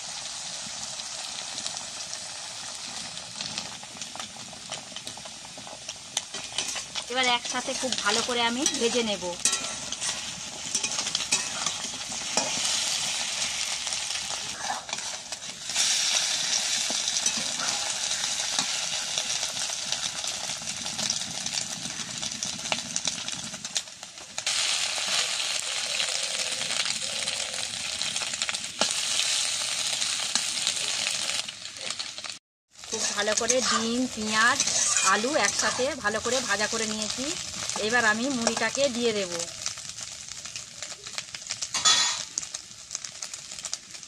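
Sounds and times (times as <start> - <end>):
food sizzling in hot oil: 0.0 - 44.0
metal spatula scraping pan: 6.2 - 18.8, 33.0 - 36.1.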